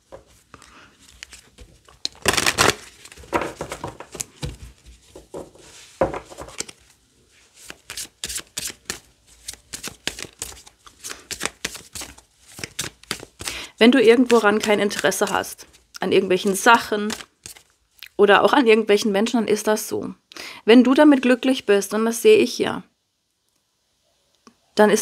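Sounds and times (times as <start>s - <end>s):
cards shuffled by hand: 0.1s - 17.7s
card edges clicking: 7.7s - 13.6s.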